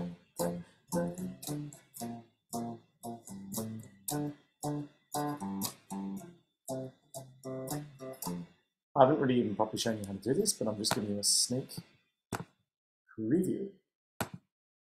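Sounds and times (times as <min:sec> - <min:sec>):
electric guitar chord stabs: 0:00.0 - 0:08.4.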